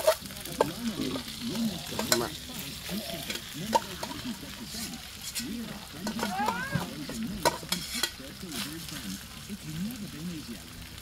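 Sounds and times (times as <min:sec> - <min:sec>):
spoon scraping metal pot: 0:03.1 - 0:08.2.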